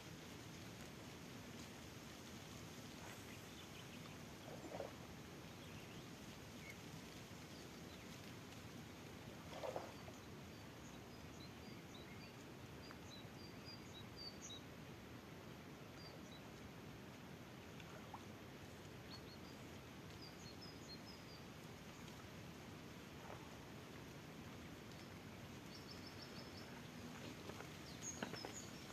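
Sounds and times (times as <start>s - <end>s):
low background hiss: 0.0s - 28.9s
small birds chirping: 3.0s - 8.3s, 9.5s - 14.7s, 18.8s - 22.2s, 24.9s - 28.9s.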